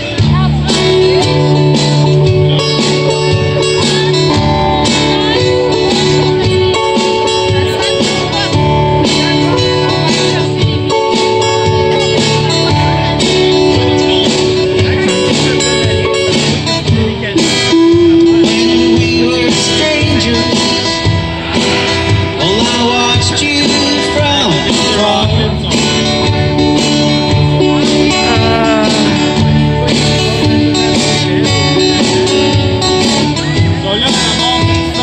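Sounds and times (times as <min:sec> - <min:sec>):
acoustic guitars strummed: 0:00.0 - 0:35.0
man singing: 0:13.9 - 0:21.6, 0:22.3 - 0:31.2.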